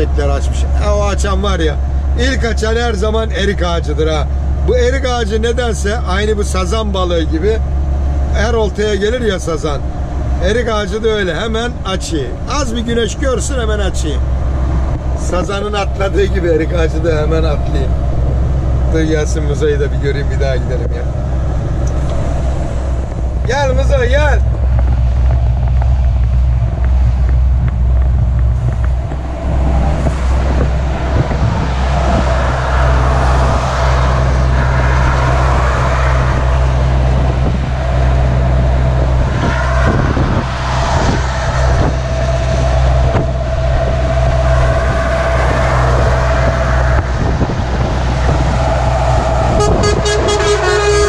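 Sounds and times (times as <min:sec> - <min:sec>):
truck engine running: 0:00.0 - 0:51.0
pulsing horn: 0:25.6 - 0:51.0
horn long toots: 0:28.6 - 0:51.0.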